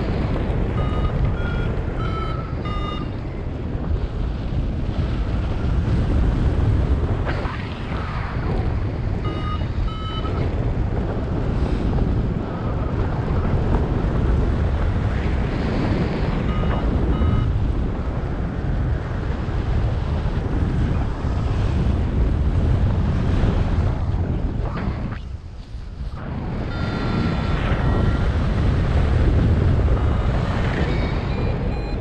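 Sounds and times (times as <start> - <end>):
wind buffeting microphone: 0.0 - 32.0
short electronic beeps: 0.7 - 3.2, 9.2 - 10.5, 16.5 - 17.5, 26.6 - 28.4, 29.9 - 32.0.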